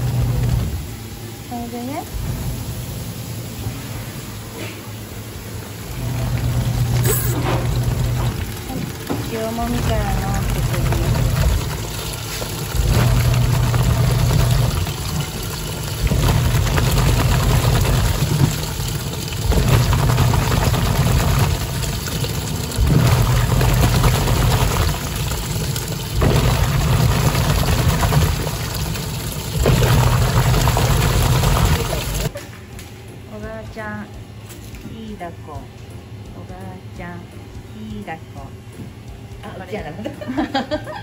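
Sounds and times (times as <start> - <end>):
water churning and sloshing: 0.0 - 32.3
low motor hum: 0.0 - 41.0.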